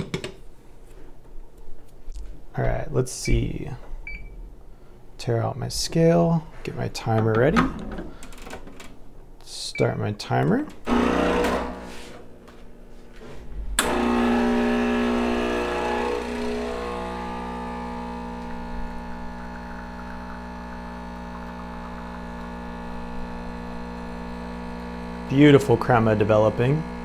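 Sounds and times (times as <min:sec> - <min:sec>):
espresso machine pump humming: 0:10.9 - 0:11.9, 0:13.8 - 0:27.0.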